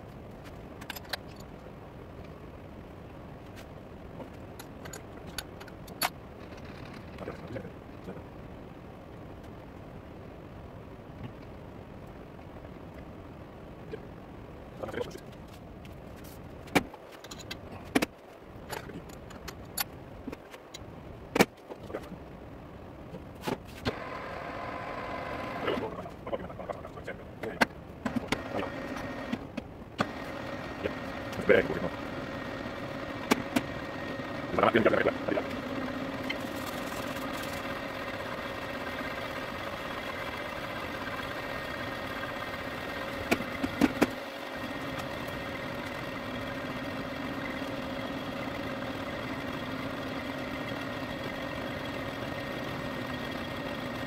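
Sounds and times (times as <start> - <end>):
steady low hum: 0.0 - 54.0
lathe whine: 23.9 - 26.0, 28.1 - 29.4, 30.0 - 54.0.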